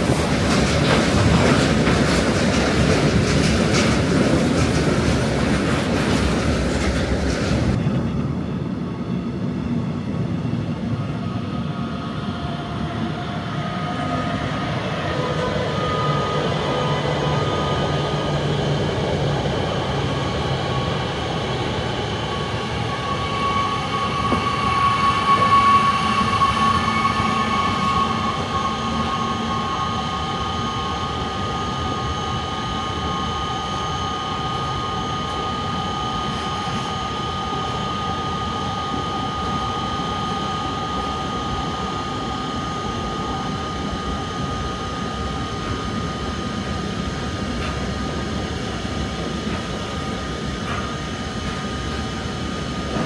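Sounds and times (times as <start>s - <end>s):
freight train rumbling on rails: 0.0s - 53.0s
high ringing tones: 22.1s - 52.8s.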